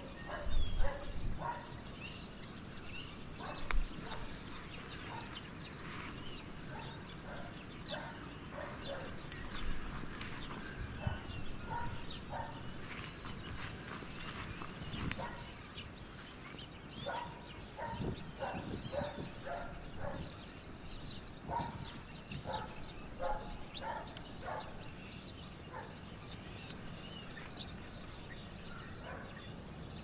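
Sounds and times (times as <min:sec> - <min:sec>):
small birds chirping: 0:00.0 - 0:30.0
footsteps crunching on gravel: 0:03.4 - 0:07.0, 0:08.6 - 0:16.5.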